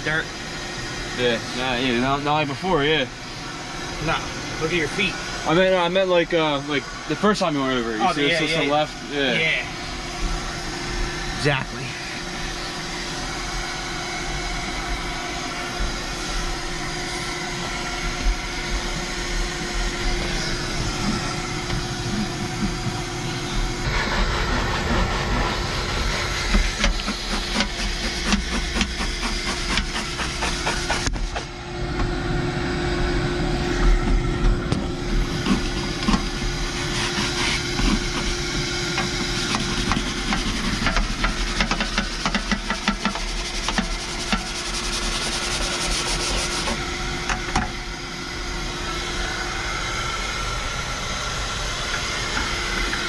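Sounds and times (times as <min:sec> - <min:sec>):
steady hum: 0:00.0 - 0:53.0
brush scrubbing rubber mat: 0:23.9 - 0:31.3, 0:35.2 - 0:46.8.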